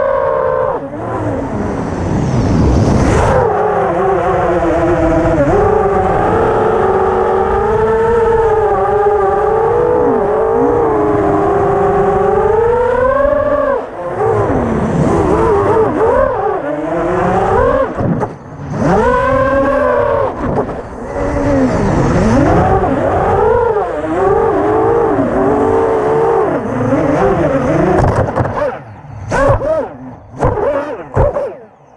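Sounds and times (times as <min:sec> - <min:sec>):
drone propellers whining: 0:00.0 - 0:31.9.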